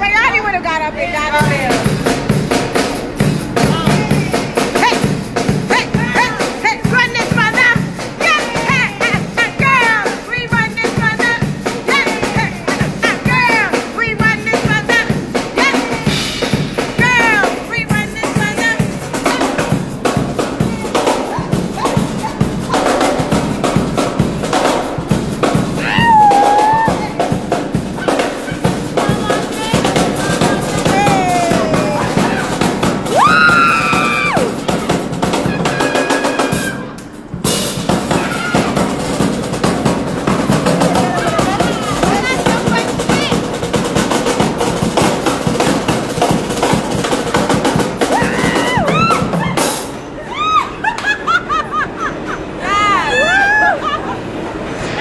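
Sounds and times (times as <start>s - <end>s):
drum kit playing: 1.2s - 50.2s
people whooping and calling out: 25.8s - 27.3s, 29.3s - 34.7s, 35.4s - 37.0s, 38.1s - 38.8s, 40.7s - 42.2s, 48.1s - 51.5s, 52.5s - 54.5s.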